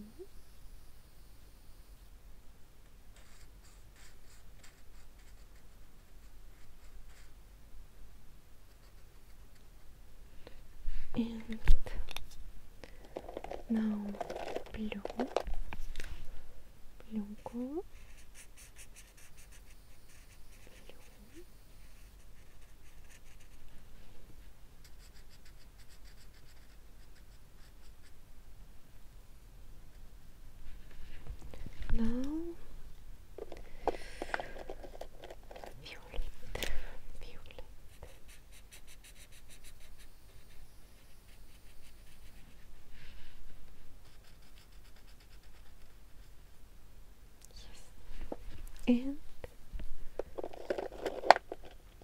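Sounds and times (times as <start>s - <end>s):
felt-tip pen scratching paper: 18.0s - 21.4s, 22.0s - 23.6s, 24.8s - 28.1s, 44.0s - 46.3s.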